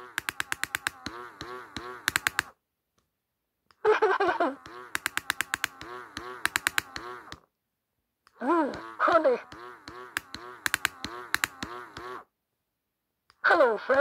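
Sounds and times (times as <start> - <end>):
toy recorded voice: 0.0 - 2.5, 4.2 - 7.4, 8.3 - 12.2, 13.3 - 14.0
toy mechanism ticking rapidly: 0.0 - 2.6, 3.9 - 7.4, 8.4 - 12.2.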